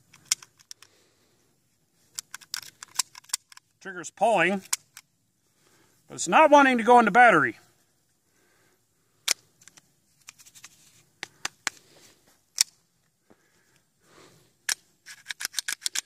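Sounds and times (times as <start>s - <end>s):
pistol slide clicks and clacks: 2.1s - 3.7s, 14.6s - 16.0s.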